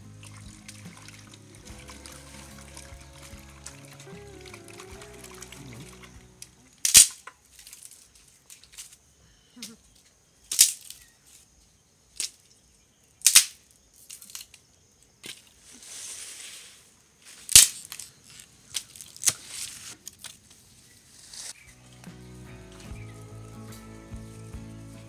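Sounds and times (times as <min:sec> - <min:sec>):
wooden stick snapping: 0:13.2 - 0:13.6.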